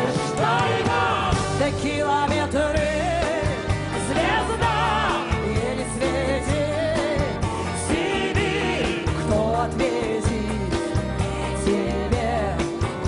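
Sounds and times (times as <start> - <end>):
acoustic guitar: 0.0 - 13.0
bass: 0.0 - 13.0
woman singing with vibrato: 0.3 - 10.7
accordion: 2.9 - 11.9.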